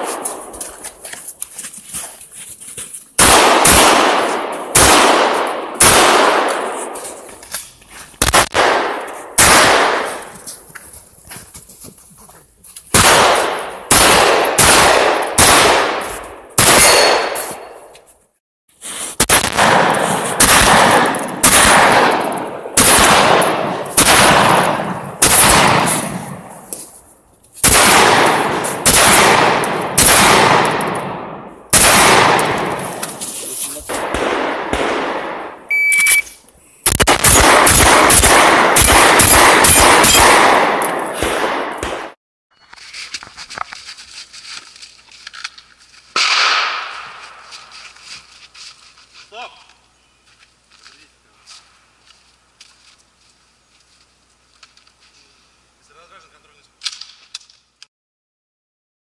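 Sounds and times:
shotgun shots echoing: 0.0s - 0.8s, 3.2s - 7.2s, 8.2s - 10.4s, 12.9s - 17.9s, 19.2s - 26.7s, 27.6s - 33.2s, 33.8s - 35.7s, 36.9s - 42.2s, 46.2s - 47.5s
shot timer beep: 35.7s - 36.3s.

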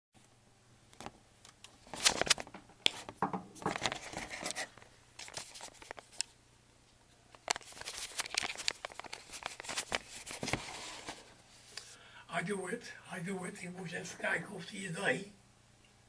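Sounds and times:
camera handling noise: 7.4s - 10.6s.

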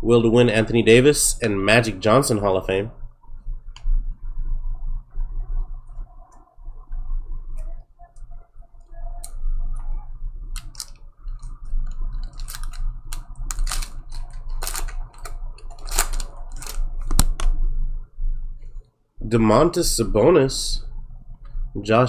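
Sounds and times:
steady low hum: 0.0s - 22.0s
cards and packs clicking and rustling: 10.6s - 17.4s.

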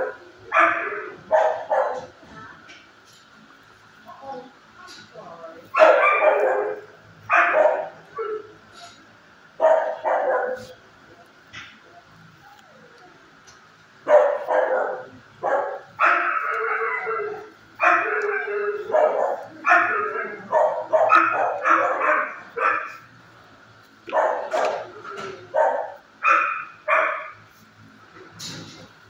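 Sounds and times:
dogs barking: 0.0s - 2.2s, 5.7s - 11.8s, 14.0s - 27.6s.

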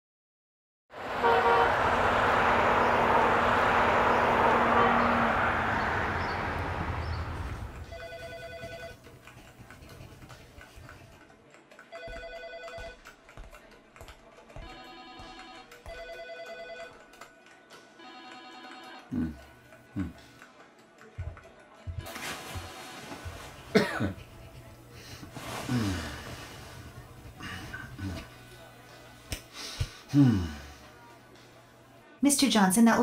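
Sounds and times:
telephone ringing: 7.8s - 9.1s, 11.9s - 13.0s, 14.6s - 17.0s, 18.0s - 19.1s.

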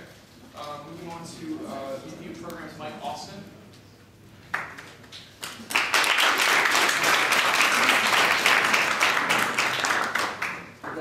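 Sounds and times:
audience applause: 5.4s - 11.0s.

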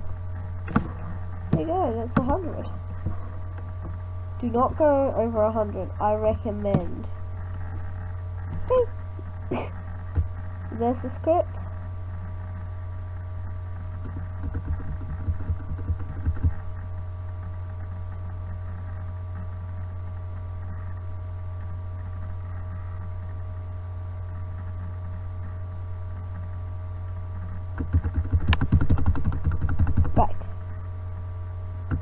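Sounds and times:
low irregular thumps: 0.0s - 4.8s, 13.8s - 16.8s
electrical mains hum: 0.0s - 32.0s.

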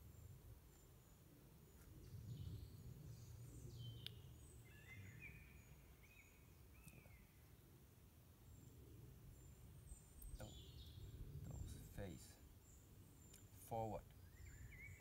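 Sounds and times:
birds chirping and whistling: 2.3s - 7.3s, 12.7s - 15.0s.

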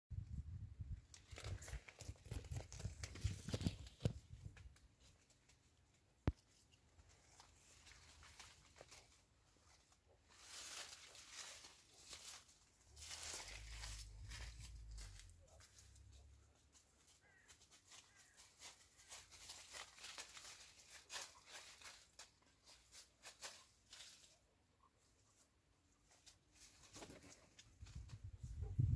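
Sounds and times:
leaves rustling and crackling: 1.0s - 24.6s, 26.0s - 28.8s
faint low rumble: 13.0s - 16.4s.

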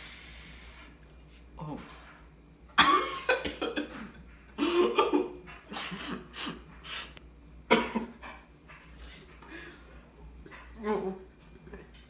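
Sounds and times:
man coughing hard: 2.8s - 4.0s, 4.6s - 5.4s, 7.7s - 8.2s.

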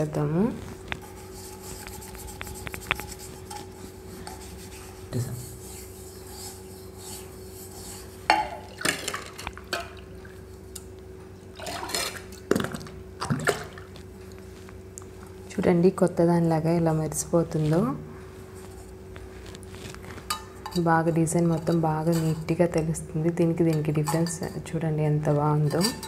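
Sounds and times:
steady low hum: 0.0s - 26.0s
metal cup rubbed by hand: 0.6s - 8.6s, 21.5s - 22.5s.

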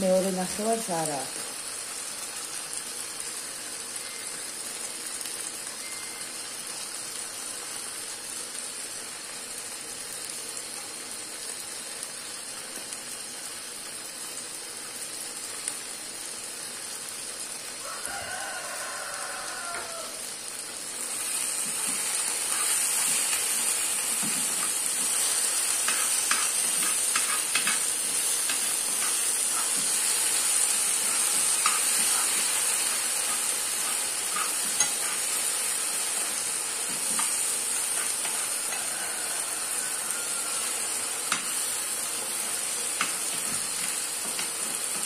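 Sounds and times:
rice sizzling and bubbling: 0.0s - 45.0s
rooster crowing: 17.8s - 20.4s, 38.2s - 41.3s
spoon stirring pan: 21.4s - 38.9s.

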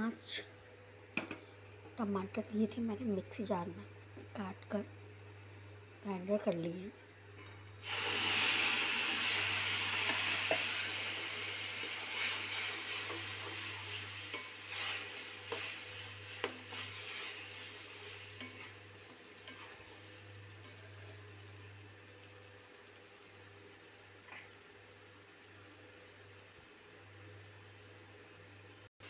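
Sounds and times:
steel spoon scraping pan: 12.2s - 18.8s, 19.4s - 20.0s.

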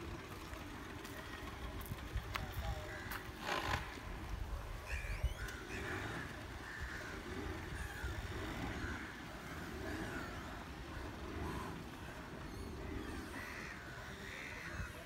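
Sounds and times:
steady low rumble: 0.0s - 15.0s
crows cawing: 2.8s - 3.4s, 4.9s - 11.6s, 13.0s - 15.0s.

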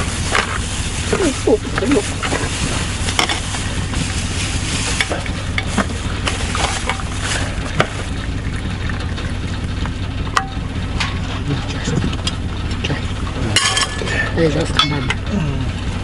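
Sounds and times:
spoons scraping food containers: 0.0s - 8.0s
plastic bags rustling: 0.0s - 8.2s.

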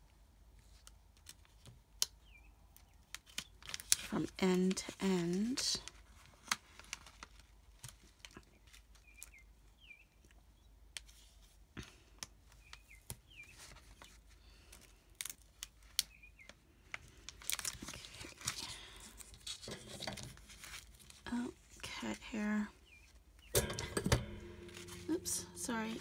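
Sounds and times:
plastic page protector crinkling: 6.2s - 8.8s, 17.3s - 21.2s.

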